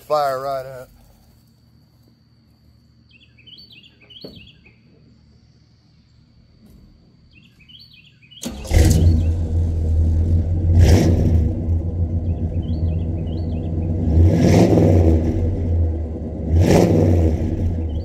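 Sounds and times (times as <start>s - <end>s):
birds chirping: 2.6s - 9.5s, 11.8s - 14.6s, 17.6s - 18.0s
car engine starting and idling: 8.4s - 18.0s.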